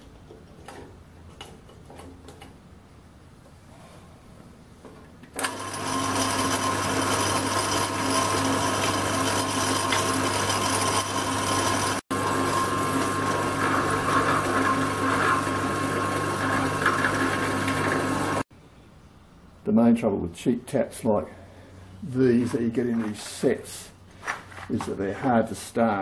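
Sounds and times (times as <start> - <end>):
drill press drilling metal: 5.4 - 18.4.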